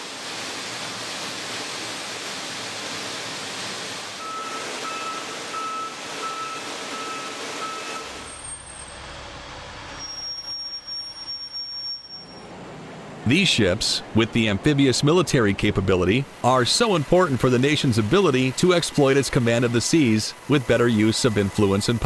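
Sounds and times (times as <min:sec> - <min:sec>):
loud steady rushing noise: 0:00.0 - 0:08.3
reversing alarm beeping: 0:04.2 - 0:09.1, 0:10.0 - 0:12.5, 0:19.1 - 0:22.0
thin high whine: 0:04.2 - 0:12.6, 0:16.4 - 0:22.0.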